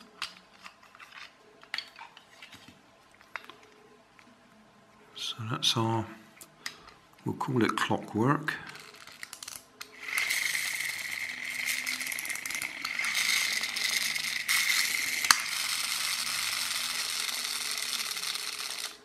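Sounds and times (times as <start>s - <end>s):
toy car clockwork motor whirring: 8.7s - 19.0s.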